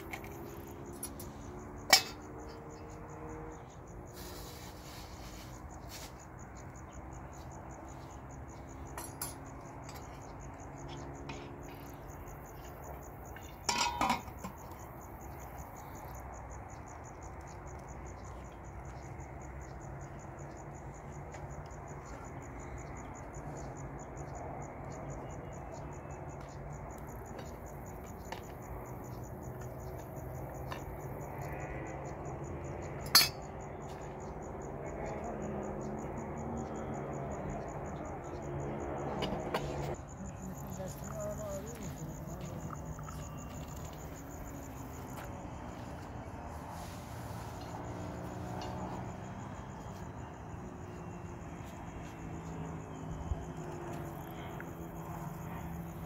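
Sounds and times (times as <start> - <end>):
crickets chirping: 0.0 - 56.0
metal teapots and dishes clinking: 1.9 - 2.6, 9.0 - 10.1, 13.6 - 14.7, 33.0 - 33.4
dishes rattling: 13.6 - 14.5.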